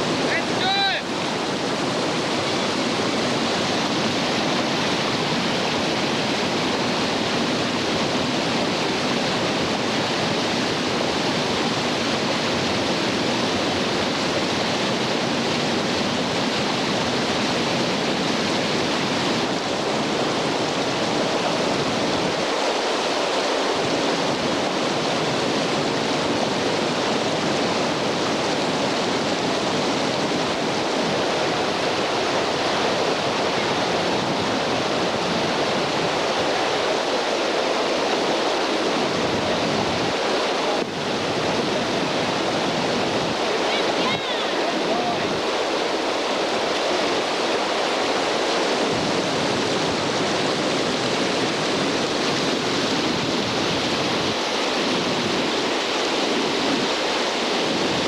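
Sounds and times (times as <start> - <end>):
whitewater rapids rushing: 0.0 - 58.0.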